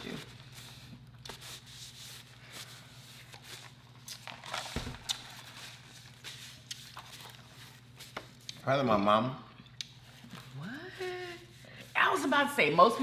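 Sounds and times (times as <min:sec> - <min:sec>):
chewing clicks and smacks: 0:09.6 - 0:10.0.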